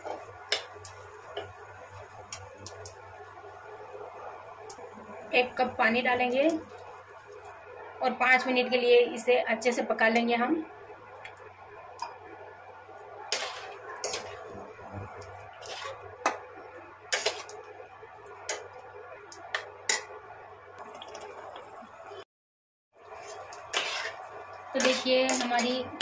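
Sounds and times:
curry bubbling: 10.8s - 20.1s, 20.8s - 22.2s, 23.0s - 26.0s.

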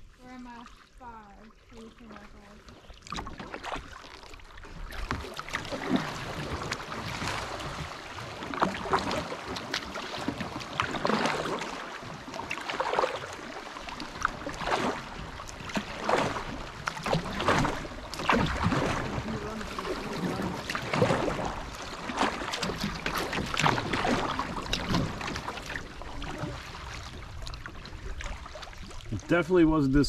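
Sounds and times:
paddle strokes splashing: 0.0s - 30.0s
water noise along hull: 0.0s - 30.0s.

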